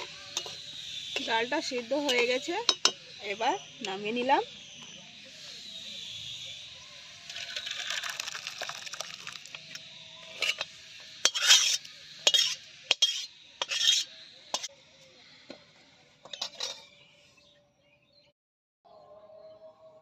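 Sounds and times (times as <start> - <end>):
metal spatula scraping pan: 0.0 - 3.0, 10.2 - 14.7, 16.2 - 17.0.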